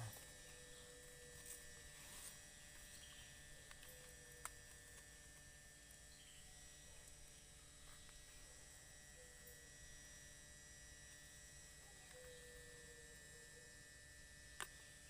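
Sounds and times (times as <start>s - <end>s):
faint steady hum: 0.0s - 15.0s
small click: 14.6s - 14.8s.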